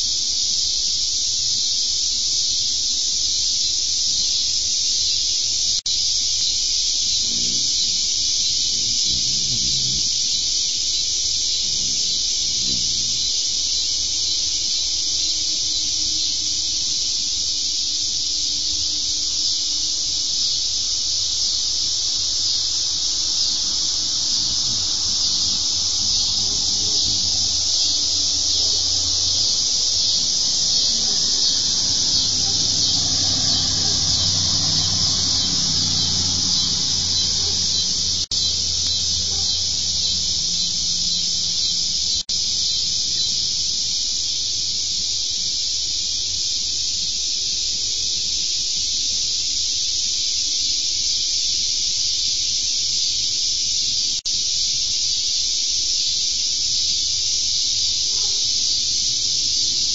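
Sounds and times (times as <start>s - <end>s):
steady high-pitched hiss: 0.0s - 59.9s
car passing by: 21.9s - 42.2s.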